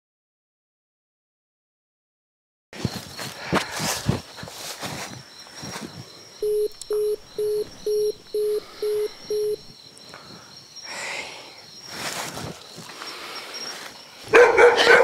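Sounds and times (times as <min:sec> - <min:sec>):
short phone call beeps: 0:06.4 - 0:09.7.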